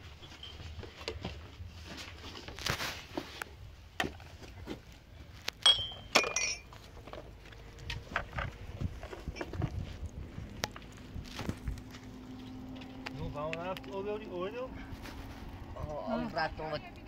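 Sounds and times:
hard objects knocking and clinking: 5.6 - 6.7
sharp ringing clinks: 5.6 - 6.7.

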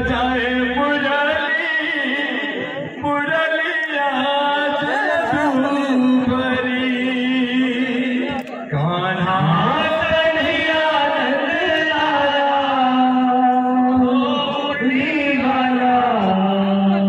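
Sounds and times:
steady drone note: 0.0 - 1.6.

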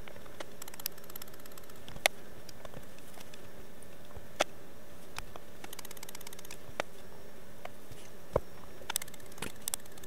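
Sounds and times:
relay clicking and ticking: 0.4 - 2.6, 5.6 - 6.6, 8.9 - 10.0.

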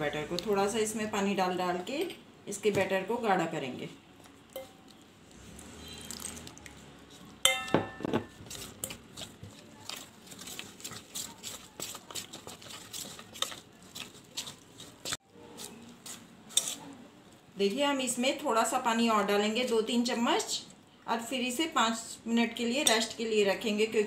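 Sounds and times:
spoon clinking against metal bowl: 4.5 - 4.9, 7.4 - 9.0, 22.8 - 23.2
metal spoon scraping dry mix: 8.2 - 17.0.

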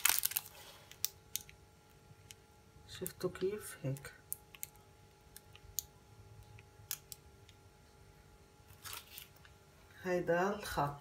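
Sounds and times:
paper piping cone crinkling: 0.0 - 1.6, 8.6 - 9.6
faint steady hum: 0.0 - 11.0.

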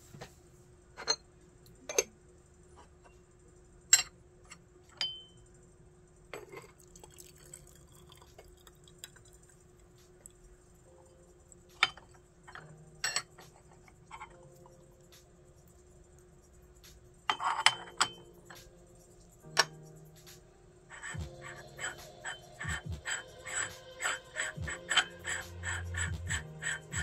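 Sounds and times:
teaware clinking: 11.8 - 13.4.

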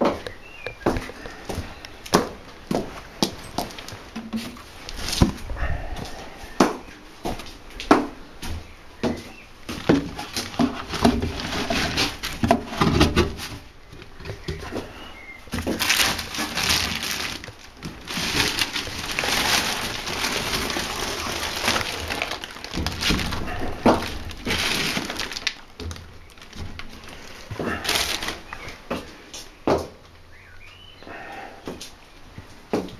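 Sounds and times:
plastic bottles clattering: 0.0 - 5.5, 9.7 - 29.1
rustling: 0.0 - 7.8, 8.5 - 29.6
plastic scraping against rubber: 9.8 - 28.7.

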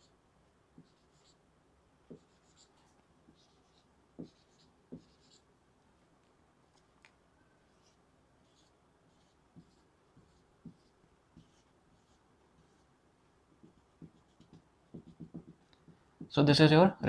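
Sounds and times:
marker squeaking on whiteboard: 0.8 - 1.4, 2.1 - 5.4, 7.7 - 12.8
marker tip tapping board: 4.2 - 5.2, 13.6 - 16.3.

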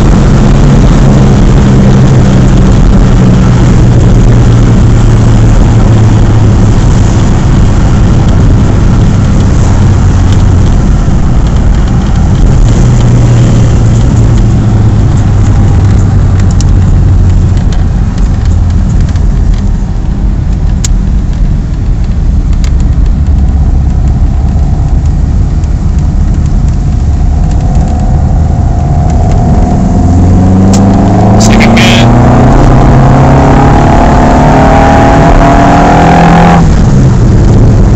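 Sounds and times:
car engine under load: 0.0 - 37.9.

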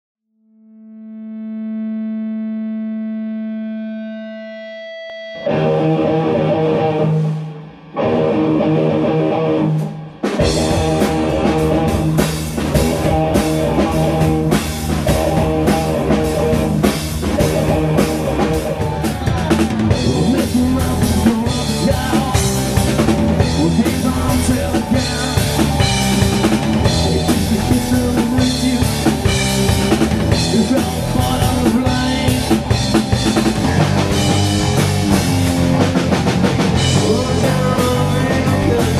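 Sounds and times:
electric guitars: 1.2 - 38.9
rock band music: 3.2 - 38.9
drum kit beat: 9.6 - 38.9.

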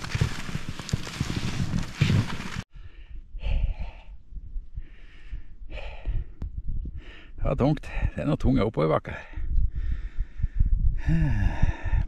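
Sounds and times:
skis sliding in snow: 0.0 - 2.6
man breathing hard: 2.7 - 8.2, 9.2 - 12.0.

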